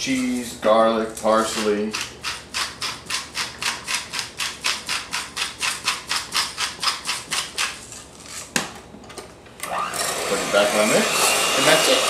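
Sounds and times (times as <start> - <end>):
utensil scraping glass bowl: 1.3 - 8.4.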